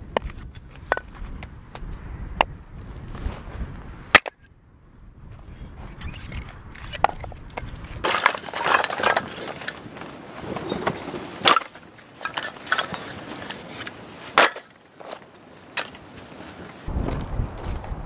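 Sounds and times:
wind rumbling on microphone: 0:00.0 - 0:11.5, 0:16.2 - 0:18.0
firewood sticks knocking together: 0:04.1 - 0:04.4, 0:06.4 - 0:16.1.

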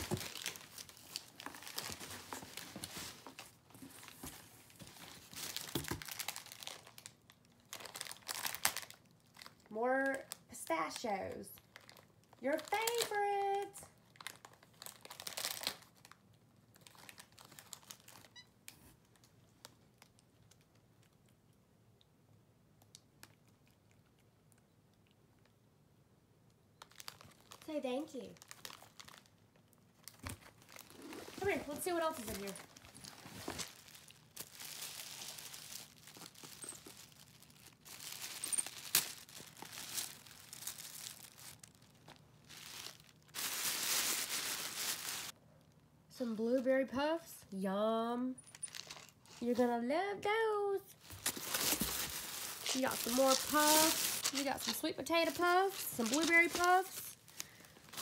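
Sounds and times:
plastic bag crinkling: 0:00.0 - 0:09.6, 0:11.6 - 0:18.4, 0:26.8 - 0:45.4, 0:48.4 - 0:49.4, 0:51.0 - 0:58.0.

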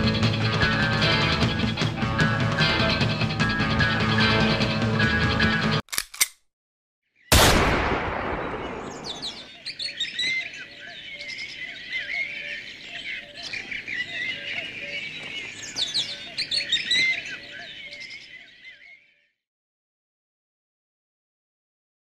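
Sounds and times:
gunshot echo: 0:07.3 - 0:09.5
songbirds chirping and twittering: 0:08.0 - 0:19.4.

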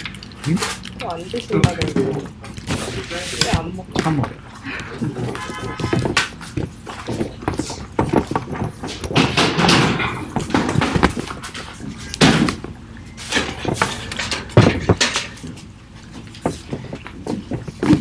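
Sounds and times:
voices: 0:00.4 - 0:06.6
knocks and clatter of objects: 0:05.2 - 0:18.0.

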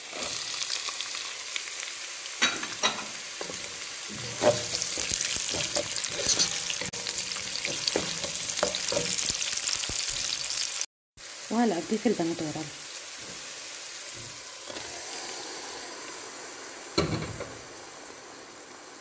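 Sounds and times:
vegetables sizzling in a pan: 0:00.0 - 0:19.0
wooden spatula scraping a pan: 0:02.8 - 0:09.3, 0:13.2 - 0:14.7.

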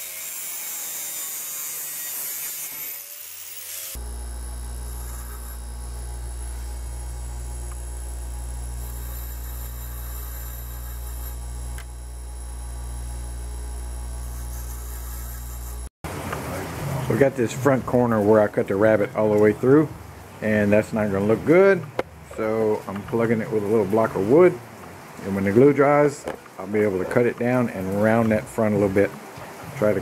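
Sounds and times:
angle grinder cutting bolt: 0:00.0 - 0:15.9
bench grinder humming: 0:00.0 - 0:15.9.

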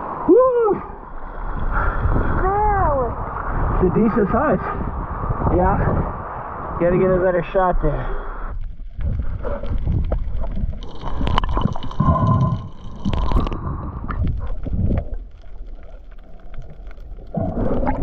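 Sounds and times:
water gurgling and sloshing: 0:08.2 - 0:18.0.

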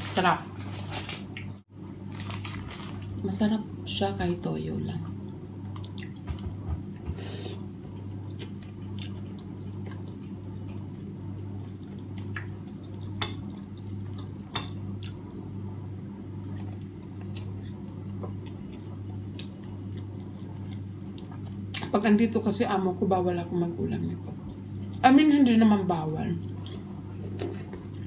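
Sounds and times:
steady low hum: 0:00.0 - 0:28.0
chewing: 0:08.0 - 0:10.8, 0:16.5 - 0:21.7.

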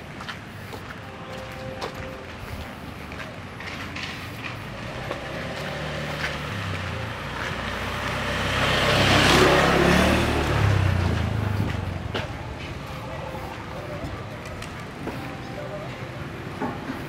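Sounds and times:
motor scooter passing by: 0:04.6 - 0:12.9.

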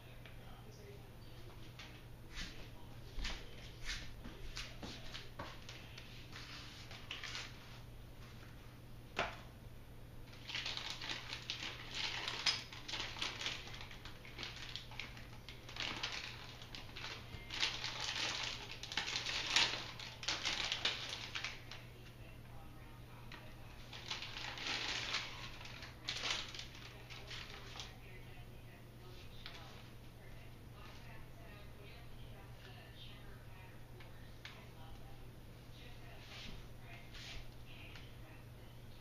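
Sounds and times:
steady low hum: 0:00.0 - 0:39.0
plastic packaging crinkling: 0:04.6 - 0:07.8, 0:10.3 - 0:21.9, 0:23.3 - 0:28.2.

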